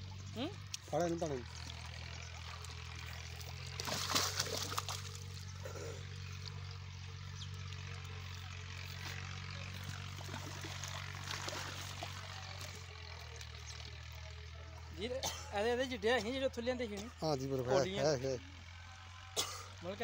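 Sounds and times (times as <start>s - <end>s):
water splashing and trickling: 0.0s - 14.6s
low engine hum: 0.0s - 20.0s.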